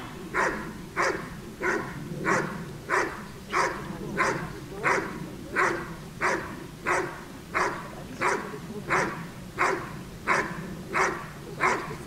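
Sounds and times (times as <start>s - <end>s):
large dog barking: 0.2s - 12.0s.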